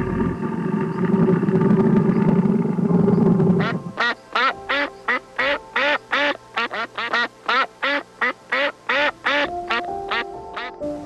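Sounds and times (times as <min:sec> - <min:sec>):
background music: 0:02.7 - 0:11.0
duck quacking: 0:03.6 - 0:10.8.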